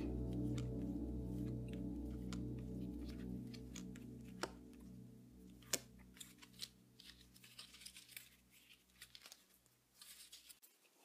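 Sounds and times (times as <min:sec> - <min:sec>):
song music: 0:00.0 - 0:08.0
photo cards being shuffled: 0:05.6 - 0:11.0.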